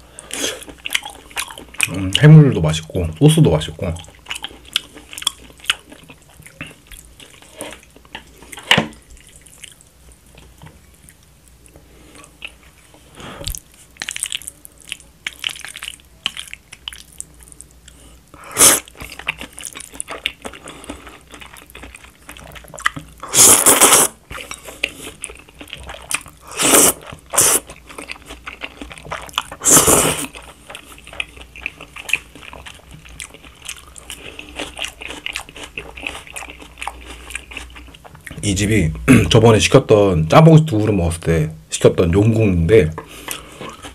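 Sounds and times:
wet chewing and mouth clicks: 0.3 - 2.3, 3.9 - 11.3, 13.4 - 18.0, 18.7 - 38.5
loud noodle slurps: 18.5 - 18.9, 23.3 - 24.2, 26.5 - 27.7, 29.6 - 30.3.

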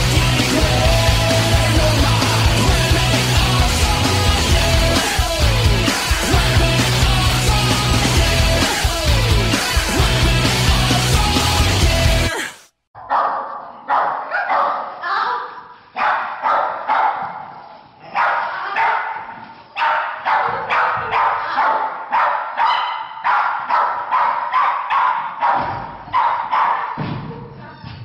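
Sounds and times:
dog barking with echo: 13.0 - 15.0, 16.0 - 17.5, 18.1 - 27.0.

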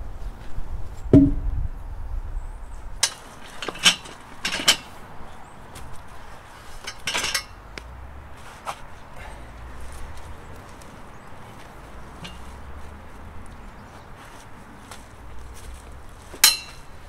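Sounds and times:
dull knock: 1.2 - 1.5
metal chain clinking and rattling: 3.6 - 4.9, 6.8 - 7.6.

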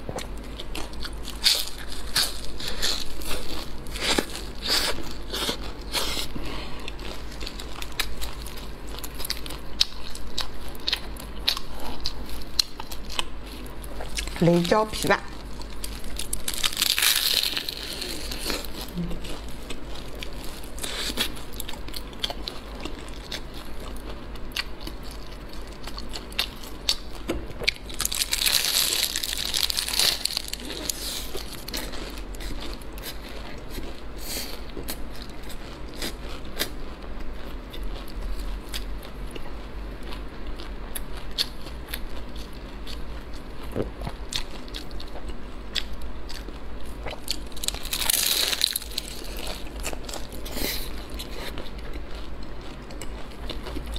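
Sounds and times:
crust crackling: 0.3 - 37.0, 46.8 - 53.9
crunchy bites into pastry: 15.6 - 33.9, 43.7 - 53.9
chewing: 15.6 - 53.9.

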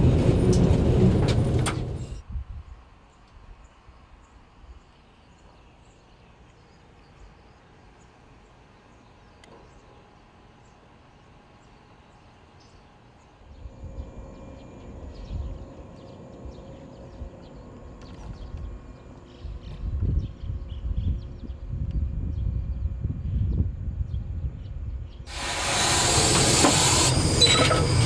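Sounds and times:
low rumble with steady hum: 12.7 - 28.0.

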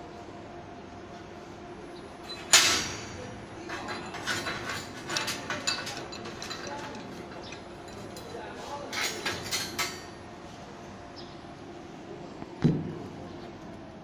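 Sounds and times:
metal clinks and scrapes: 3.6 - 10.2.

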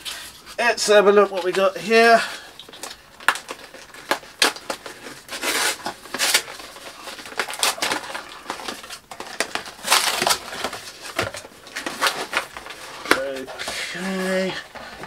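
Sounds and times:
cardboard tearing and crinkling: 2.7 - 15.0
sharp cardboard rips: 3.2 - 14.4.

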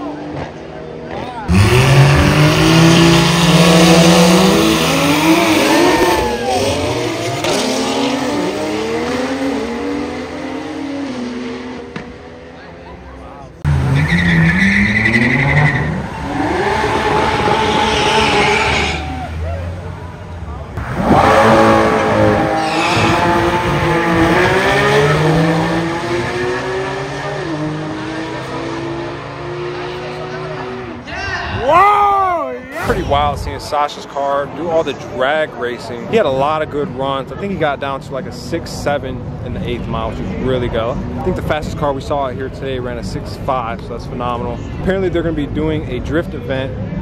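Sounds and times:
race car engines accelerating: 0.0 - 31.8.

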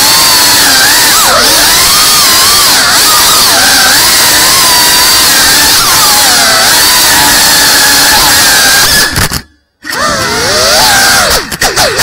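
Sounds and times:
quadcopter motors whining: 0.0 - 12.0.

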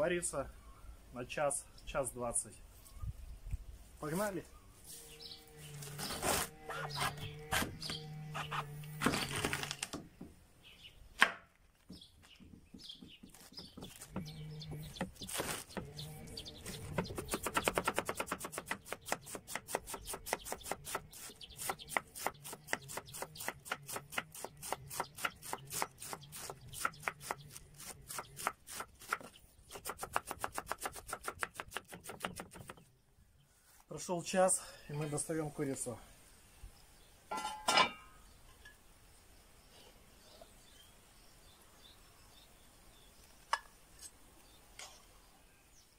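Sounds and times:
knife cutting cabbage: 14.8 - 15.9, 16.9 - 32.7.

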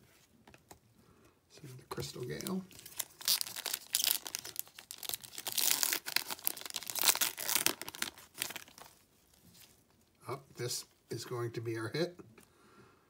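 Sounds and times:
foil wrapper tearing and crinkling: 2.4 - 9.7.

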